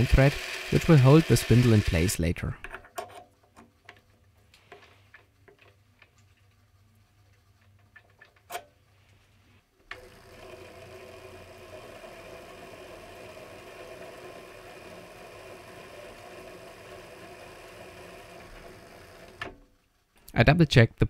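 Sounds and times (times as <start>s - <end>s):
lathe motor whine: 0.0s - 2.1s, 9.9s - 19.5s.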